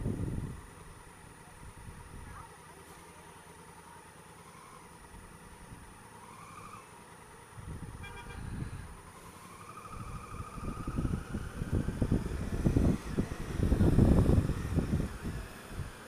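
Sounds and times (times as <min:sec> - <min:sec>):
wind buffeting microphone: 0:00.0 - 0:00.8, 0:07.6 - 0:09.0, 0:09.8 - 0:16.0
motorcycle engine running: 0:00.0 - 0:16.0
traffic rumble: 0:00.0 - 0:16.0.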